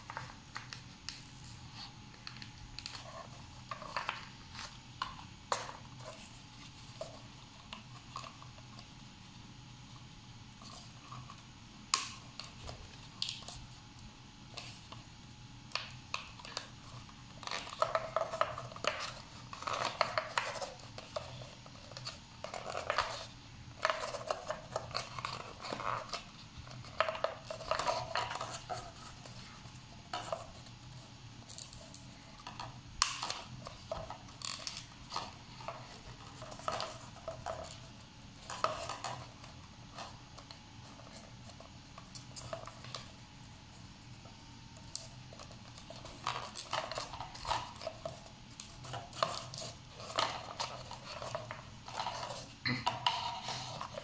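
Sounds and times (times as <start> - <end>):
paper crinkling and rustling: 0.0 - 9.1, 15.8 - 31.2, 44.8 - 54.0.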